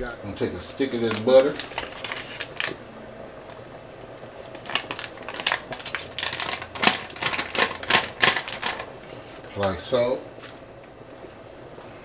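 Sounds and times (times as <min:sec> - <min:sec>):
butter wrapper crinkling: 0:00.9 - 0:02.8, 0:04.4 - 0:08.9.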